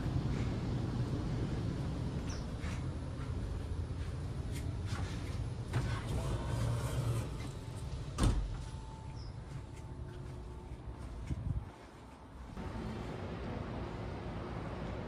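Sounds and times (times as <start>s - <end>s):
footsteps: 7.3s - 12.6s.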